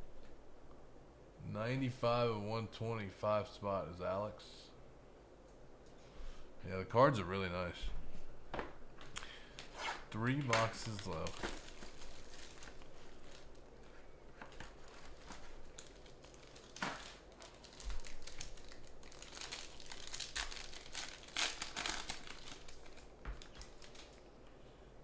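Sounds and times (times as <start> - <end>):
plastic wrapping crinkling: 9.4 - 24.4.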